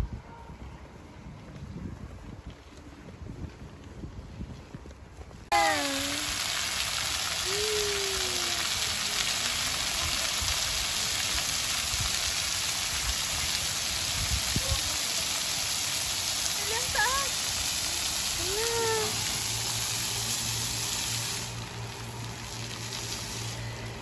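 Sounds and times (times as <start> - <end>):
fountain water splashing: 5.2 - 24.0.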